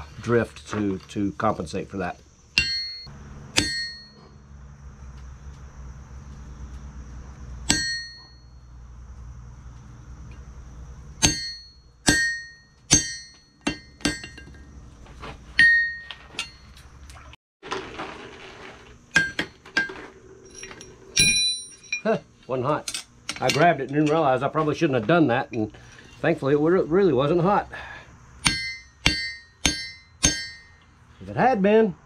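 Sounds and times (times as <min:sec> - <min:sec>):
steady low hum: 0:00.0 - 0:17.4, 0:18.9 - 0:32.0
hammer striking steel on anvil: 0:02.6 - 0:04.4, 0:07.6 - 0:08.5, 0:11.2 - 0:14.7, 0:15.6 - 0:16.6, 0:19.2 - 0:20.0, 0:28.4 - 0:30.9
light metal clinks: 0:20.5 - 0:24.2.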